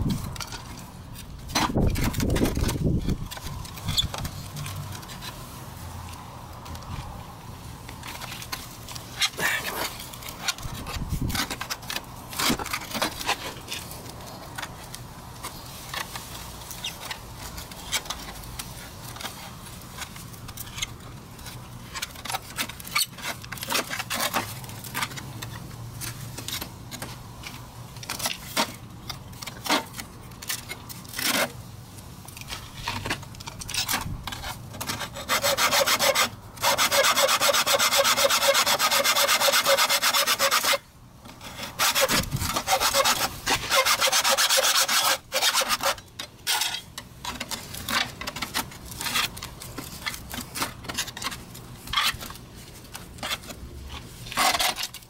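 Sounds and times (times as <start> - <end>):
hacksaw cutting metal: 34.3 - 40.8, 41.7 - 46.8.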